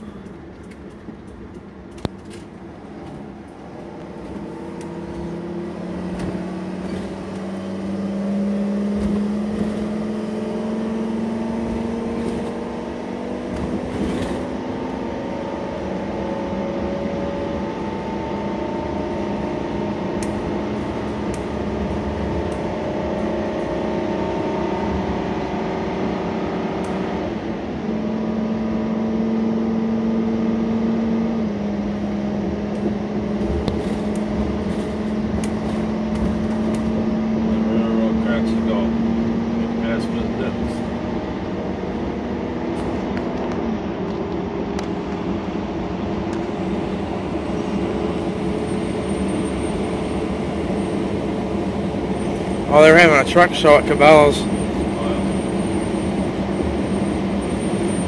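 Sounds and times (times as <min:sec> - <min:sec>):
engine pulling under load: 0:00.0 - 0:25.6.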